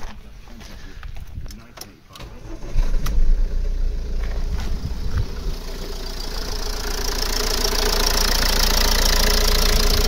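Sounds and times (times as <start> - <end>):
diesel engine idling: 2.4 - 10.0.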